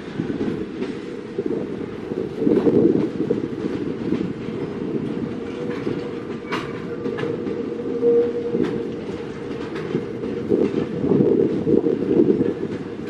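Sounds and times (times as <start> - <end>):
freight train rumbling past: 0.0 - 13.0
wheels clacking over rail joints: 0.0 - 13.0.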